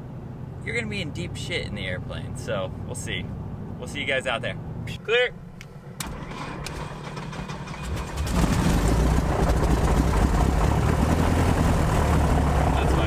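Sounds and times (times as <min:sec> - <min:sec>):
piston aircraft engine running: 0:05.3 - 0:13.0
engine cranking: 0:06.0 - 0:11.7.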